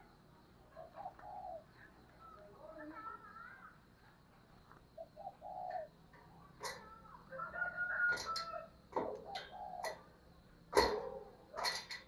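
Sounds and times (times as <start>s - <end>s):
dove cooing: 0.7s - 1.9s, 5.0s - 6.0s, 6.6s - 10.1s.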